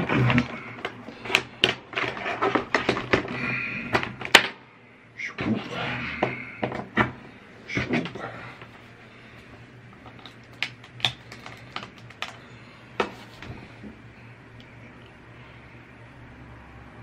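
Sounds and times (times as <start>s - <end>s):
usb cable handling clicks and rustles: 0.0s - 4.6s, 9.9s - 14.0s.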